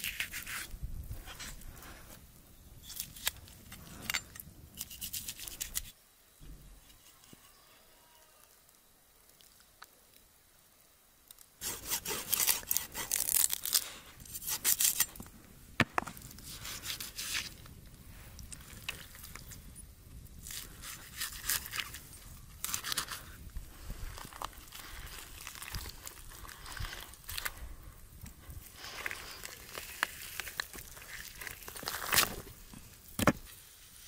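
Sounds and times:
knife sawing through raw meat: 11.6s - 13.4s.

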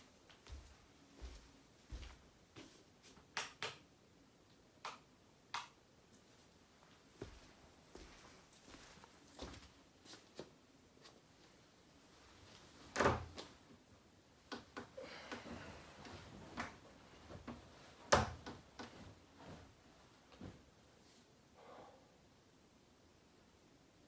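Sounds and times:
duvet rustling: 15.5s - 21.3s.

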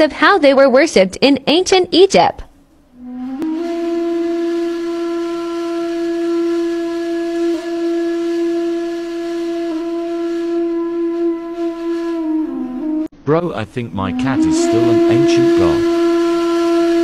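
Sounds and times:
wind instrument long note: 3.0s - 13.1s, 13.7s - 17.0s.

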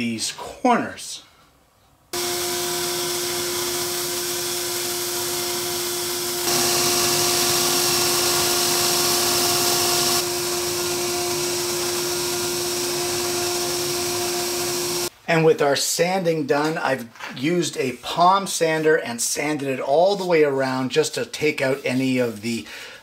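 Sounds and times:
belt sander motor hum: 2.2s - 15.1s
wood sanding hiss: 2.2s - 15.1s.

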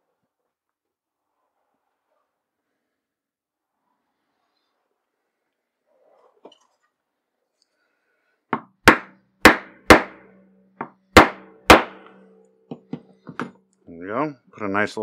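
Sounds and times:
mallet striking metal punch: 8.8s - 12.3s.

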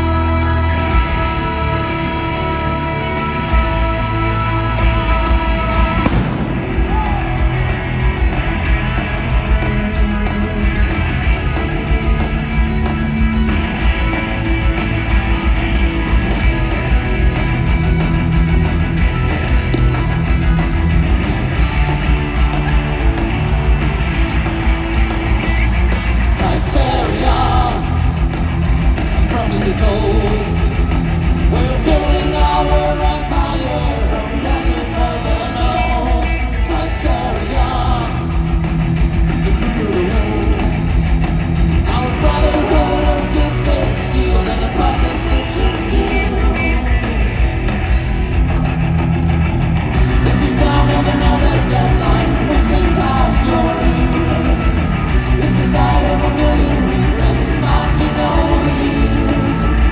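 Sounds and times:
person singing: 0.0s - 7.6s, 26.4s - 28.2s, 31.5s - 38.6s, 41.8s - 47.4s, 50.2s - 59.9s
live rock band playing: 0.0s - 59.9s.

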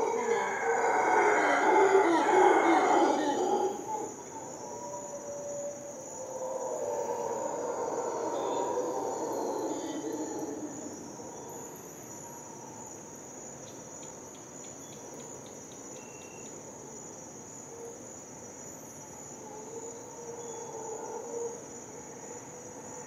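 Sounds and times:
low animal call: 0.0s - 5.6s
high-pitched insect drone: 0.0s - 13.0s.

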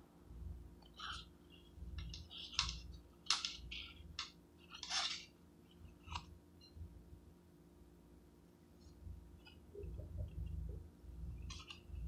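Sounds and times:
paper wrapper tearing and crinkling: 4.8s - 5.3s.

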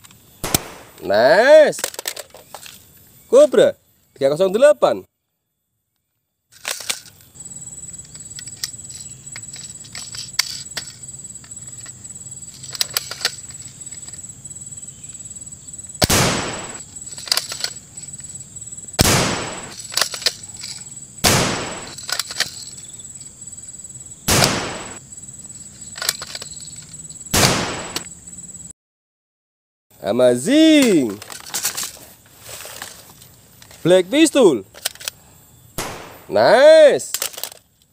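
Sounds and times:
toy rifle shots: 0.4s - 1.2s, 16.0s - 17.6s, 19.0s - 20.4s, 21.2s - 22.2s, 24.3s - 25.0s, 27.4s - 28.0s
small clicks: 17.1s - 18.3s, 25.9s - 27.0s, 34.7s - 35.2s, 37.1s - 37.9s.

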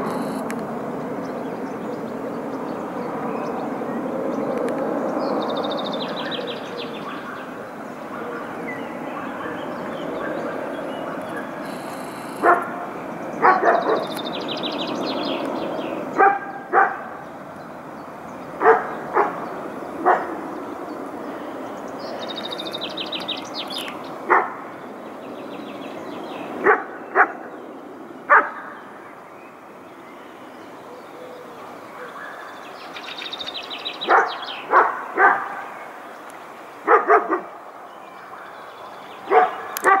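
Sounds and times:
dog barking: 12.4s - 12.8s, 13.4s - 14.1s, 16.2s - 17.2s, 18.6s - 19.4s, 20.0s - 20.4s, 24.3s - 24.6s, 26.6s - 27.4s, 28.3s - 28.8s, 34.0s - 35.8s, 36.9s - 37.5s, 39.3s - 40.0s.

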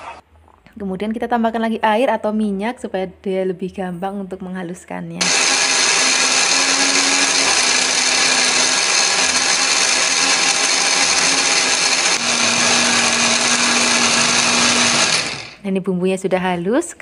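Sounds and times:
blender grinding: 5.2s - 15.6s.

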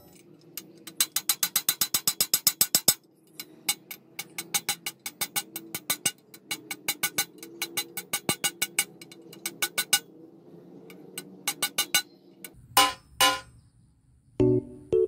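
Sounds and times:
ratchet wrench clicking: 0.0s - 10.1s.

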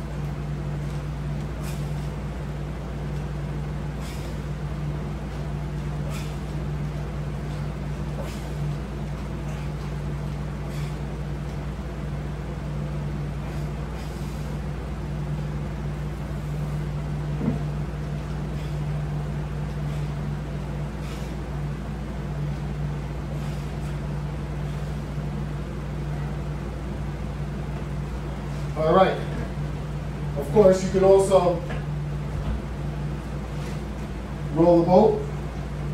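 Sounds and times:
air conditioner humming: 0.0s - 35.9s.

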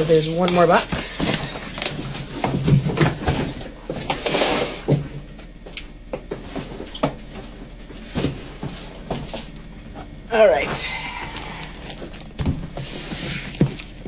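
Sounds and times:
cardboard scraping rustle: 11.6s - 14.0s.

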